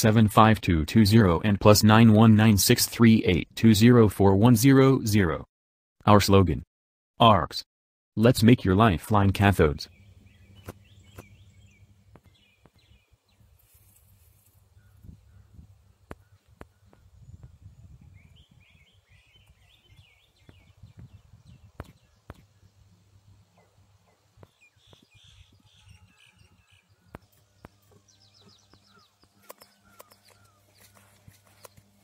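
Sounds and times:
small birds chirping: 9.8s - 32.0s
sharp clicks: 28.7s - 31.9s.

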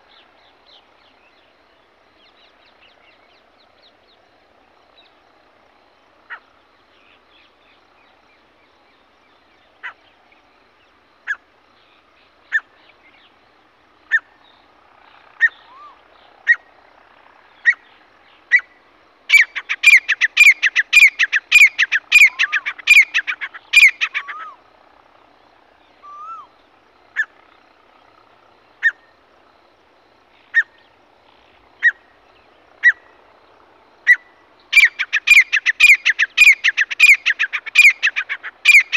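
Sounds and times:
francolin calling: 15.4s - 16.7s, 17.5s - 24.7s, 25.8s - 27.5s, 28.6s - 29.2s, 30.4s - 33.2s, 34.0s - 38.9s.

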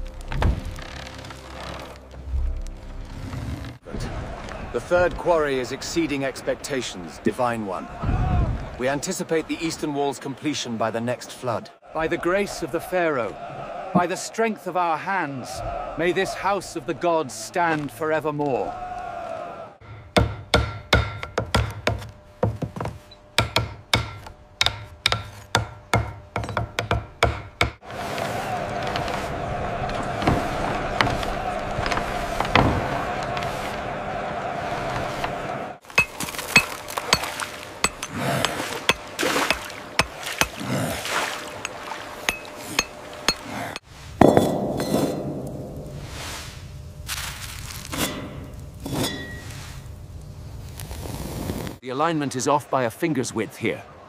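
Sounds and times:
mallet striking wood chisel: 19.8s - 27.8s, 35.9s - 40.6s, 41.6s - 44.9s
metal chisel clinking on stone: 36.0s - 40.6s, 41.6s - 43.5s.

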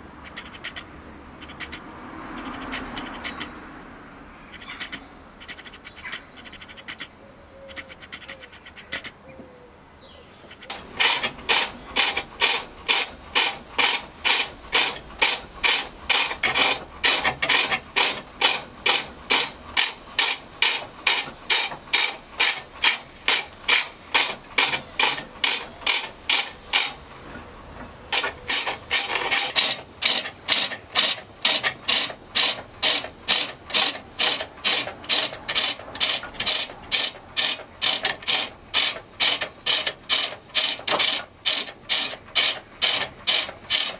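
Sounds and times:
turning tool rasping on wood: 10.7s - 27.1s, 28.1s - 43.9s.

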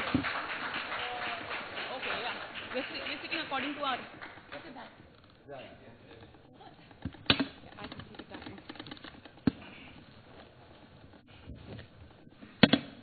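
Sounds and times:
light rustling of people moving: 4.6s - 12.6s
scattered clicks and knocks: 6.9s - 9.6s.

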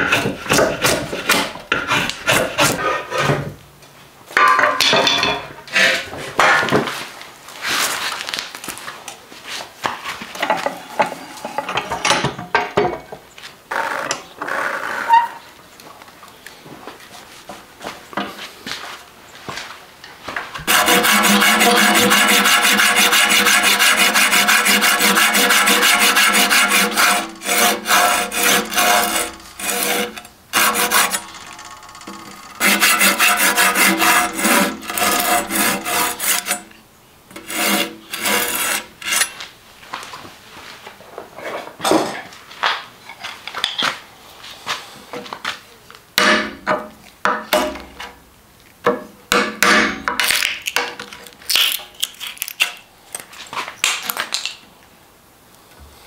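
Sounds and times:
hand saw rasping through wood: 0.0s - 3.2s, 20.7s - 31.4s, 32.1s - 36.7s, 37.3s - 39.3s
chisel chipping wood: 20.7s - 31.4s, 32.6s - 36.6s.

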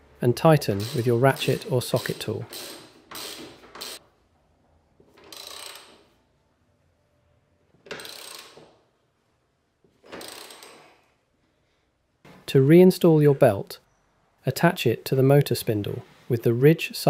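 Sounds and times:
ratchet wrench clicking: 0.8s - 4.0s, 5.2s - 6.0s, 7.9s - 8.6s, 10.1s - 10.8s.

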